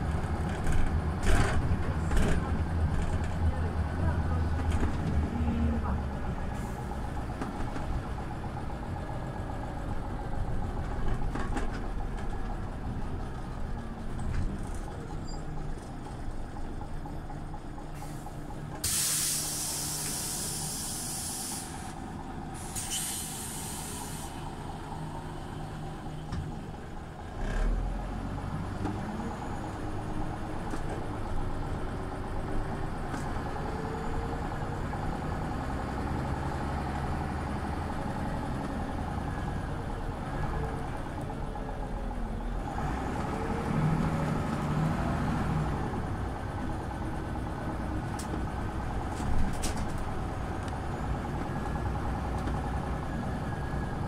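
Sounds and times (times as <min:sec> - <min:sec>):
bus engine running: 0:00.0 - 0:54.0
compressed air hissing: 0:18.8 - 0:21.9, 0:22.6 - 0:24.4.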